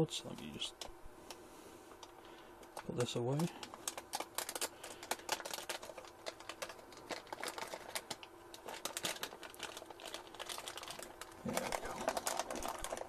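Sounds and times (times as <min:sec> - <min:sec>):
plastic bag crackling: 0:02.8 - 0:13.0.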